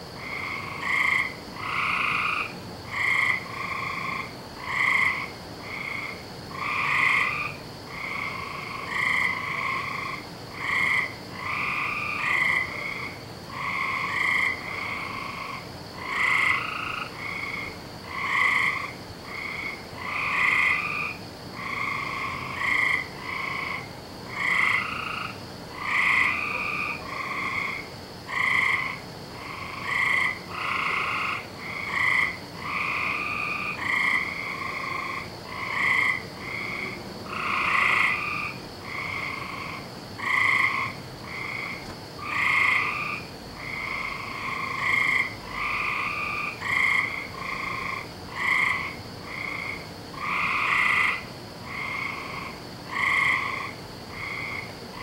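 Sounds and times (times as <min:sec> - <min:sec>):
frogs croaking: 0:00.0 - 0:55.0.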